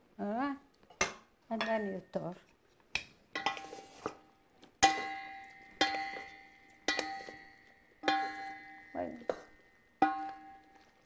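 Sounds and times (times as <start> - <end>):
spatula knocking ringing steel bowl: 4.8 - 10.7.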